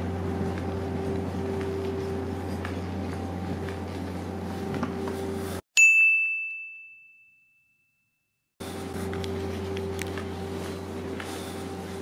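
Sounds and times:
low humming background: 0:00.0 - 0:05.6, 0:08.6 - 0:12.0
bright bell ding: 0:05.8 - 0:08.4.

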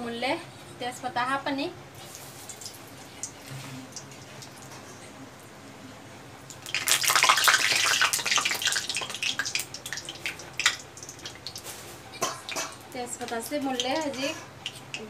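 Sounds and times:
leaves sizzling in hot oil: 0:02.0 - 0:04.6, 0:06.5 - 0:15.0
oil spattering and crackling: 0:02.0 - 0:05.0, 0:06.4 - 0:15.0.

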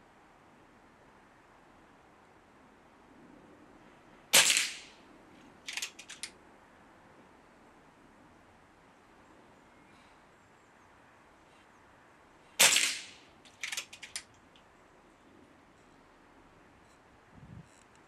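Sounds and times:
air rifle shot crack: 0:04.3 - 0:05.0, 0:12.6 - 0:14.2
rifle lever mechanical clicks: 0:05.7 - 0:06.3, 0:13.5 - 0:14.3.

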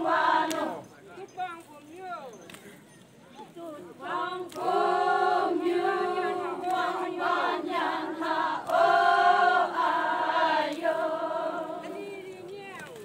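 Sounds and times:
group singing in unison: 0:00.0 - 0:00.8, 0:04.0 - 0:12.6.

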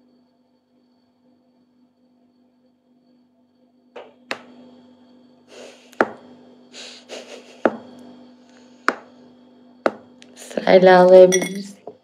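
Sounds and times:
faint steady hum: 0:00.0 - 0:12.0
soft breathy puffs: 0:05.5 - 0:06.0, 0:06.7 - 0:07.6.

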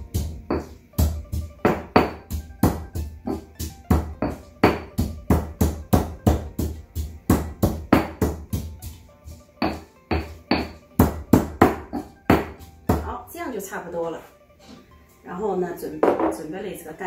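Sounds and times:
pestle pounding in stone mortar: 0:00.0 - 0:13.2
music playing: 0:00.0 - 0:17.0.

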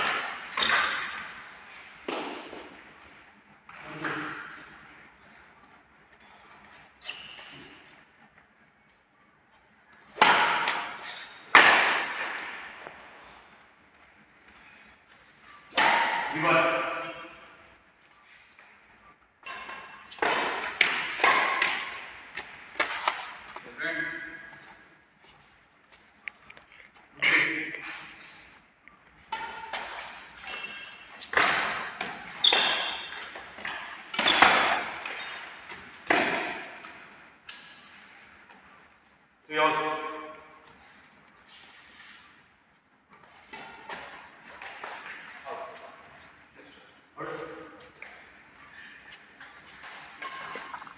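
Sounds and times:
badminton racket striking shuttlecock: 0:19.4 - 0:23.6, 0:29.2 - 0:38.0.

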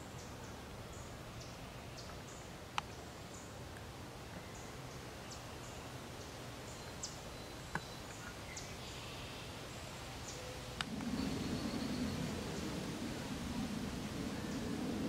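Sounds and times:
steady background hiss: 0:00.0 - 0:15.0
faint clicks: 0:10.8 - 0:11.2
low rumble: 0:10.8 - 0:15.0.

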